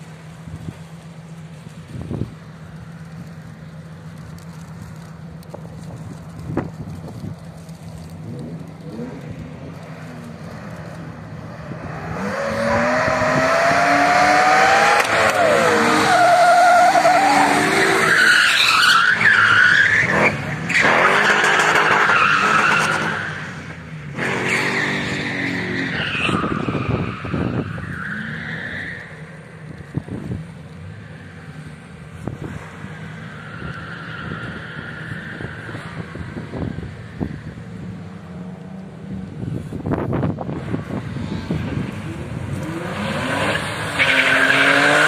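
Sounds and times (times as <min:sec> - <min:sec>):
tyres squealing: 0:15.1 - 0:29.4.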